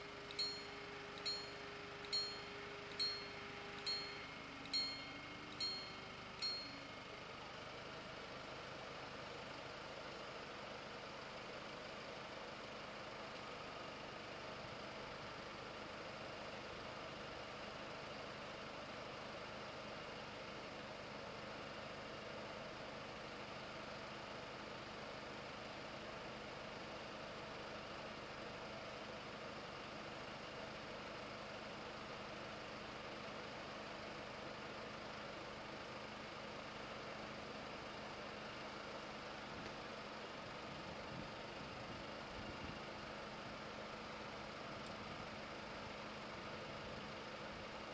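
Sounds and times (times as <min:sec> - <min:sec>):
low background hum: 0:00.0 - 0:08.0
level-crossing bells ringing: 0:00.3 - 0:06.8.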